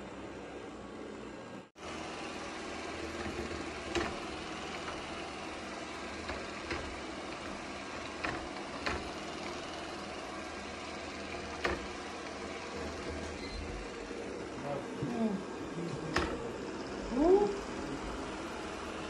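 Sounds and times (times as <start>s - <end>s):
robot vacuum whirring: 1.8s - 19.0s.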